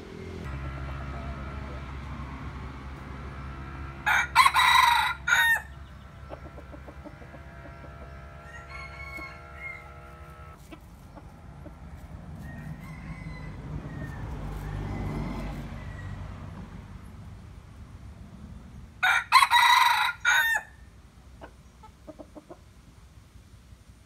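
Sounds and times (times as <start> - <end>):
rooster crowing: 0.4 - 10.6, 12.4 - 16.7, 19.0 - 20.9.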